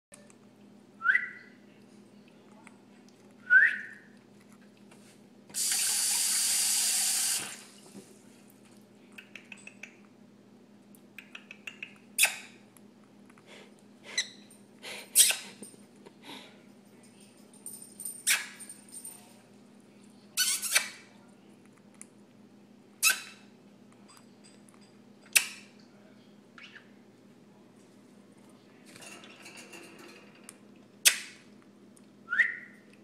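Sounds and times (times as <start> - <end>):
parrot chirps: 15.2 - 15.5, 23.0 - 23.4, 26.6 - 26.9.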